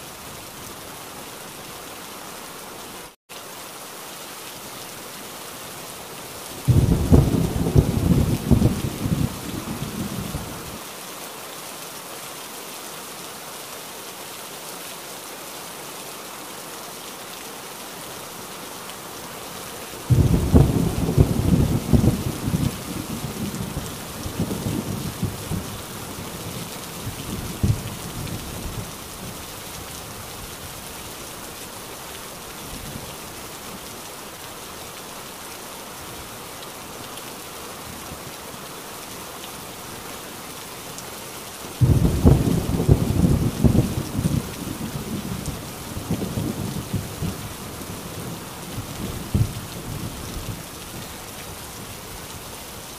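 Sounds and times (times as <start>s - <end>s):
heavy rain falling: 0.0s - 52.9s
thunder rumbling: 6.7s - 10.6s, 20.1s - 29.3s, 41.8s - 47.6s, 48.2s - 50.6s
thunderclap: 20.1s - 23.6s, 41.8s - 45.4s.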